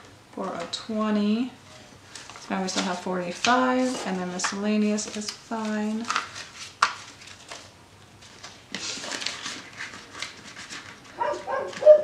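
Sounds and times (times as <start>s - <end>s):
plastic envelopes rustling: 2.0s - 12.0s
dog making noises: 11.2s - 12.0s.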